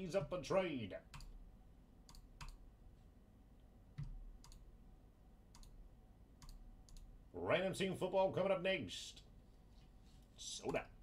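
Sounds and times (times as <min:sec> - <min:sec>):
faint clicks: 0:04.0 - 0:04.6, 0:05.5 - 0:05.8, 0:06.4 - 0:07.1.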